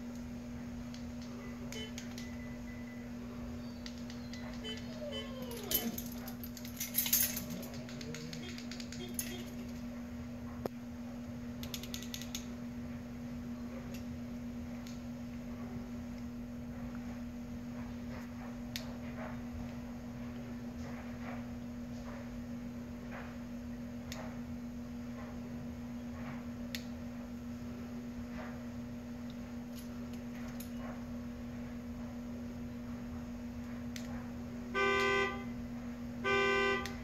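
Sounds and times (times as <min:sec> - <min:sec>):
steady low hum: 0:00.0 - 0:37.0
car horn honks: 0:08.4 - 0:09.7, 0:34.8 - 0:35.5, 0:36.2 - 0:37.0.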